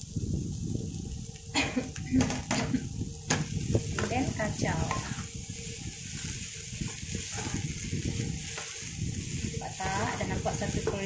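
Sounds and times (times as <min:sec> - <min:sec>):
food sizzling in a pan: 0:00.0 - 0:11.0
wooden spatula scraping pan: 0:03.9 - 0:05.3, 0:06.1 - 0:11.0.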